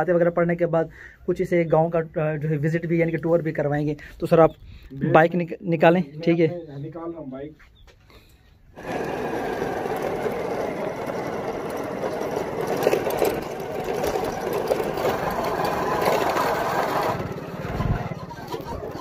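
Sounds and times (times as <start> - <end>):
small motorcycle engine running: 8.8 - 19.0.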